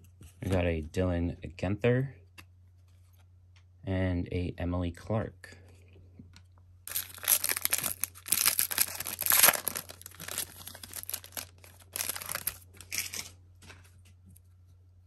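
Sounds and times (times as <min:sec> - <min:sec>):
wrapper tearing and crinkling: 0:06.9 - 0:13.4.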